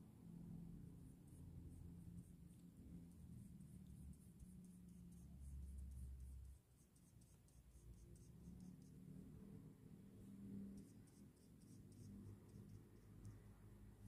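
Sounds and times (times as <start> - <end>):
low steady hum: 0.0 - 14.0
brush scratching on paper: 1.0 - 9.2, 10.5 - 13.5.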